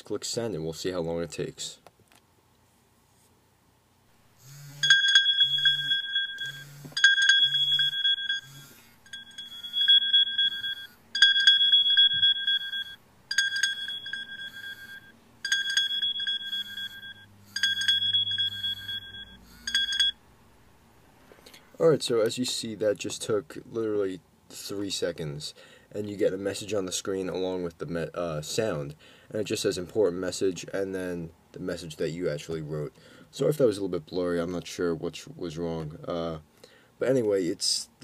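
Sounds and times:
short low buzzes: 0:04.3 - 0:12.9
phone alert chime: 0:04.5 - 0:20.2.

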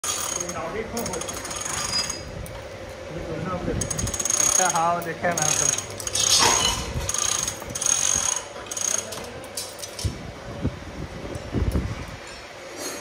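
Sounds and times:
ratcheting tool whining and rattling: 0:00.0 - 0:02.6, 0:03.8 - 0:10.1.

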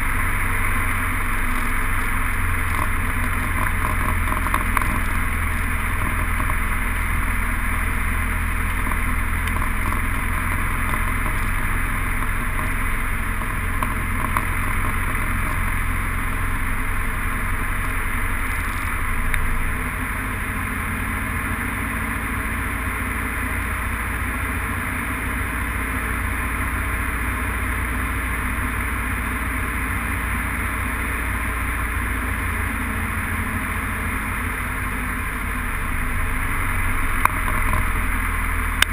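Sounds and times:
aircraft engine drone: 0:00.0 - 0:38.9.

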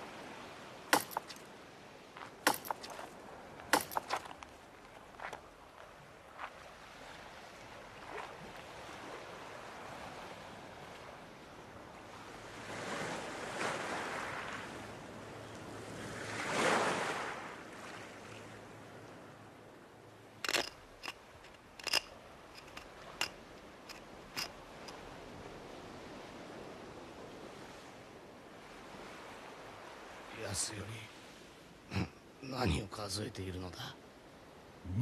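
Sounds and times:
waves washing on stony shore: 0:00.0 - 0:15.0, 0:15.8 - 0:18.9.

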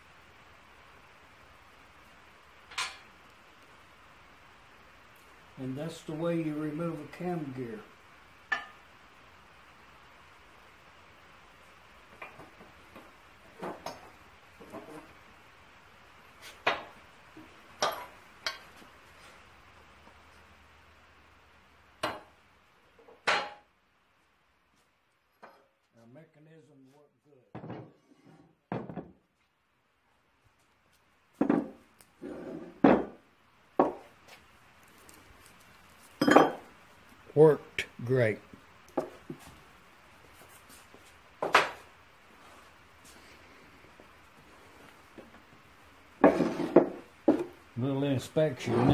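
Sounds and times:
metal scraping on workbench: 0:32.2 - 0:32.8, 0:46.2 - 0:47.0, 0:48.6 - 0:48.9.

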